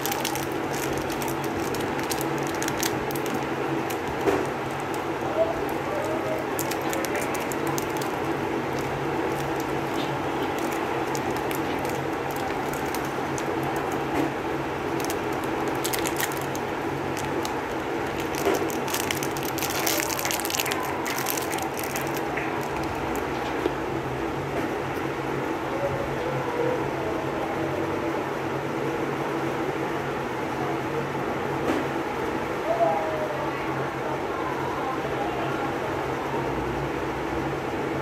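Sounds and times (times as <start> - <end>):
plastic wrapper crinkling: 0.0 - 23.7.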